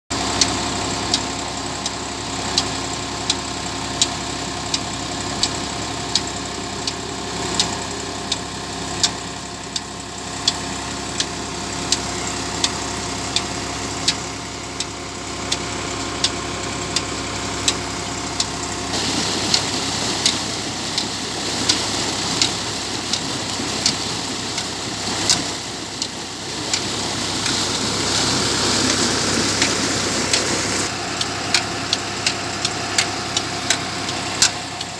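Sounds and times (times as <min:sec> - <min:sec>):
rushing water from pump: 0:00.1 - 0:34.9
tractor diesel engine running: 0:00.1 - 0:34.9.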